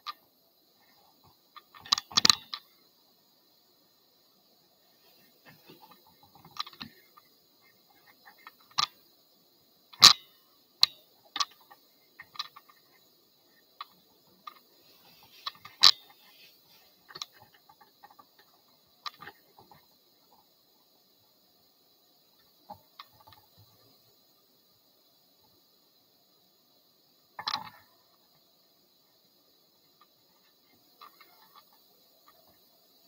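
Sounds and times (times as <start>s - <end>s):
small objects clicking and knocking: 0.8s - 2.9s, 5.1s - 9.0s, 9.9s - 13.1s, 13.7s - 20.5s, 22.4s - 23.9s, 27.4s - 28.3s, 30.0s - 32.7s.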